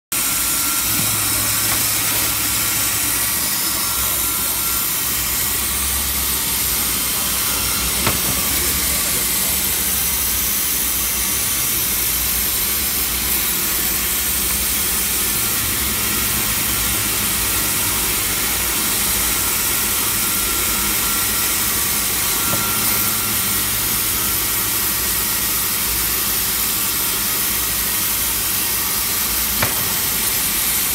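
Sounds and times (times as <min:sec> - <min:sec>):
bandsaw cutting wood: 0:00.2 - 0:16.2, 0:16.8 - 0:30.9.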